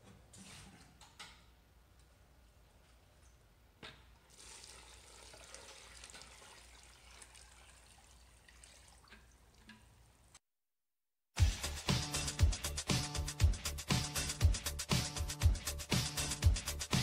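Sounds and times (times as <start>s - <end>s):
water trickling into bucket: 4.2s - 10.4s.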